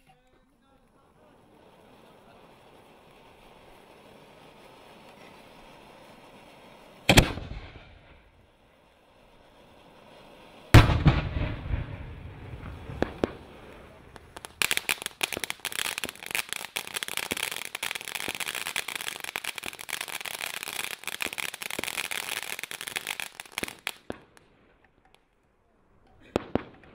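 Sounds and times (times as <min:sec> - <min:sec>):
firework fountain hissing: 0:00.0 - 0:24.2
rapid firework crackling: 0:00.0 - 0:25.2
loud bang: 0:10.8 - 0:13.4.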